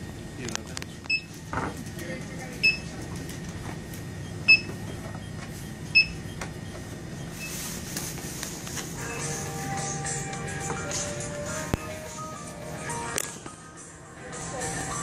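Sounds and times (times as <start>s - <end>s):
store background noise: 0.0s - 15.0s
barcode scanner beeping: 2.6s - 2.9s, 4.2s - 7.6s.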